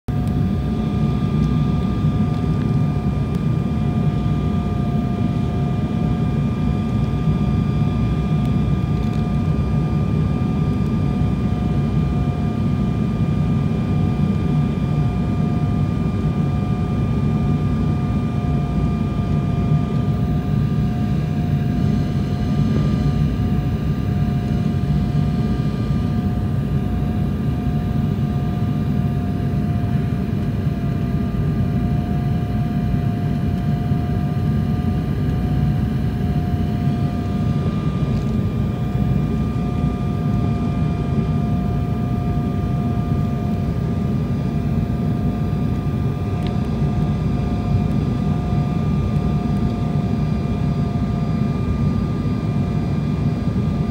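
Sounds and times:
airliner cabin engine rush: 0.1 - 53.9
steady whining tones: 18.0 - 51.8.

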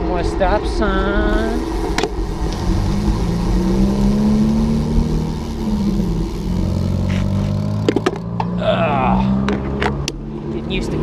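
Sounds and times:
wind rumbling on microphone: 0.0 - 7.3
vehicle engine running: 0.8 - 11.0.

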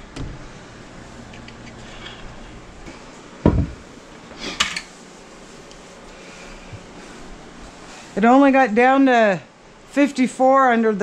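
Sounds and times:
door thudding shut: 3.4 - 3.8.

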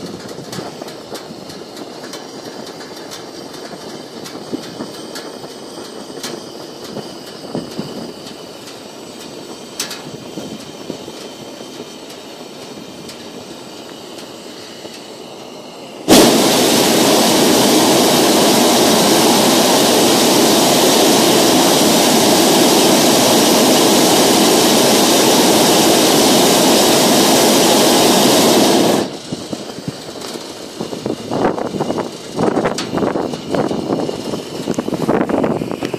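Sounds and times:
propane burner blast: 0.0 - 35.9
low hiss: 10.8 - 31.5.

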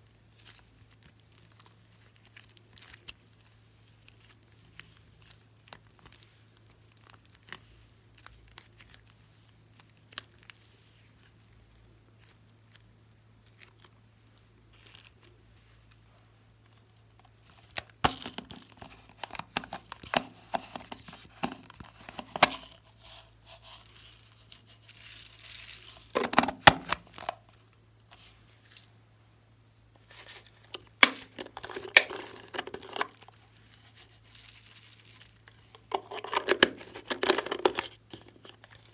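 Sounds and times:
slime crackling and squelching: 0.0 - 29.0.

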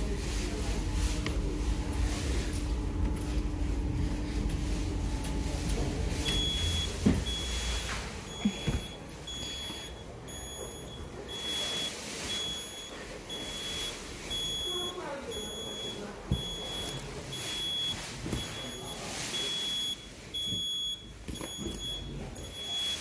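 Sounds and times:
high steady electronic beeps: 6.3 - 23.0.

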